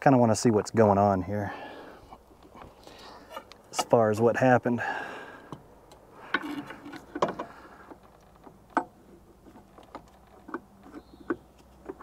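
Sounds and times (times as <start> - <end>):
metallic clicks and knocks: 5.5 - 12.0.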